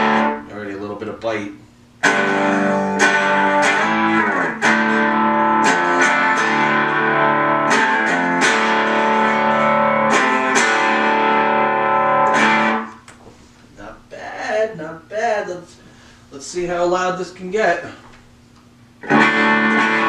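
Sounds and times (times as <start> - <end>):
electric guitar chords strummed: 0.0 - 0.5, 2.0 - 13.1, 19.0 - 20.0.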